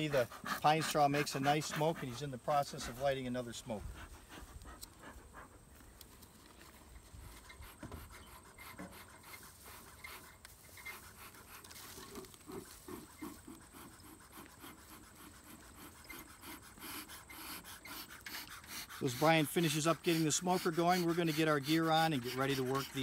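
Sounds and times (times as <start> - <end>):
bellows puffing: 7.3 - 23.0.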